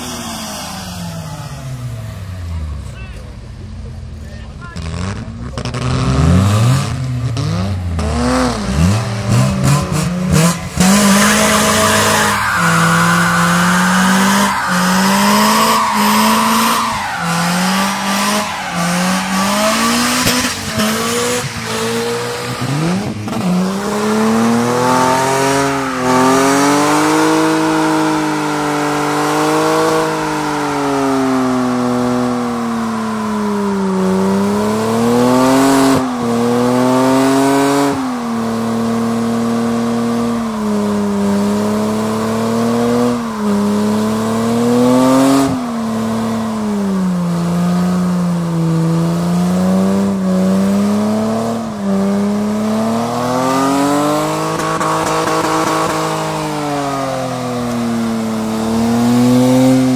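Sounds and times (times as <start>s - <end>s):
car engine revving: 0.0s - 59.9s
tyres squealing: 10.8s - 22.8s.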